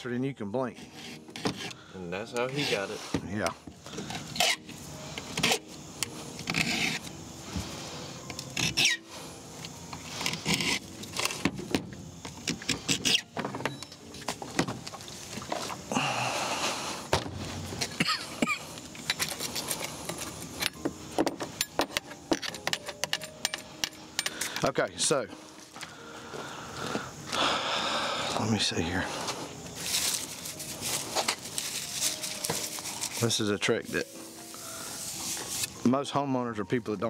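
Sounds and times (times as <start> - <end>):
file rasping across chainsaw chain: 0.7 - 1.8, 2.4 - 3.2, 6.4 - 7.1, 8.6 - 9.0
metallic clinks and rattles: 19.0 - 24.7.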